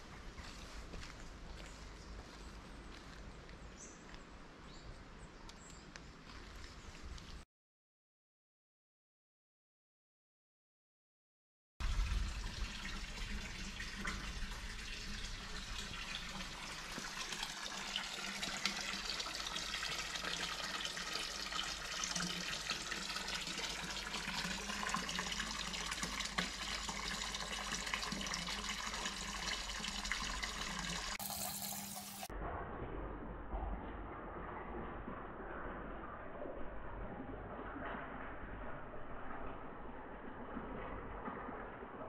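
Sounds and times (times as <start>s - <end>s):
fountain water splashing into basin: 11.8s - 32.3s, 33.3s - 42.0s.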